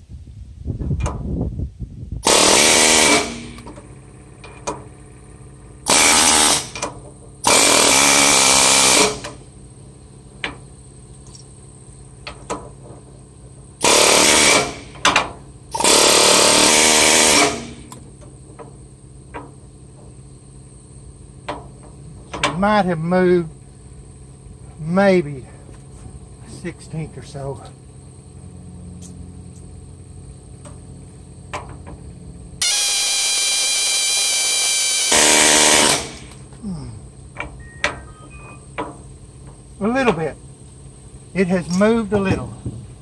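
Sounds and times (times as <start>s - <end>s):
pneumatic air hammer bursts: 2.2s - 3.8s, 5.8s - 9.4s, 13.8s - 18.0s, 32.6s - 36.5s.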